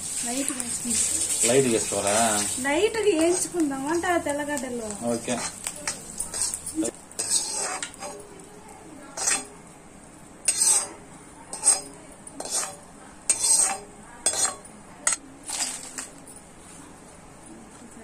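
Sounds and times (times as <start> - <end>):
spatula scraping metal pan: 3.2 - 4.3, 5.0 - 8.2, 9.1 - 9.6, 10.4 - 16.1.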